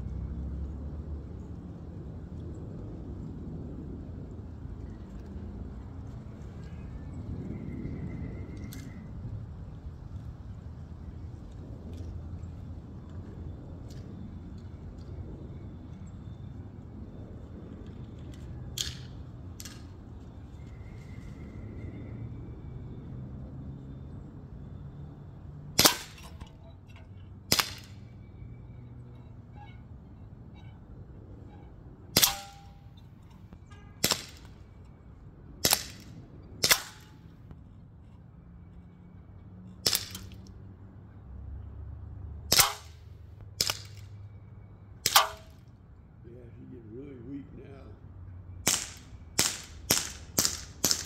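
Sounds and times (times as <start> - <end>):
air pistol shots: 25.8 - 26.4, 27.5 - 28.0, 32.2 - 32.8, 34.0 - 34.5, 35.6 - 37.2, 39.8 - 40.4, 42.5 - 44.0, 45.0 - 45.6, 48.6 - 51.0
bbs striking can targets: 42.5 - 43.0, 45.1 - 45.5.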